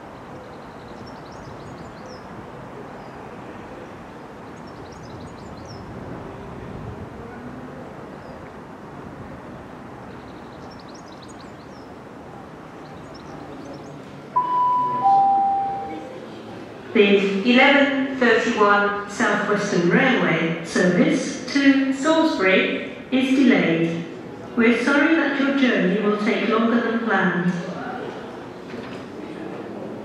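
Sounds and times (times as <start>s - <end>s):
railway background noise: 0.0s - 30.0s
birds chirping: 0.1s - 5.9s, 10.0s - 16.2s
two-note public address chime: 14.4s - 16.3s.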